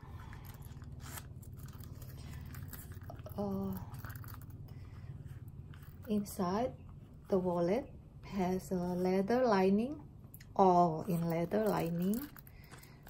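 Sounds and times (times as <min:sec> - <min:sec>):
steady low hum: 0:00.0 - 0:13.0
wallet rustling and clicking: 0:00.1 - 0:06.3, 0:11.0 - 0:13.0.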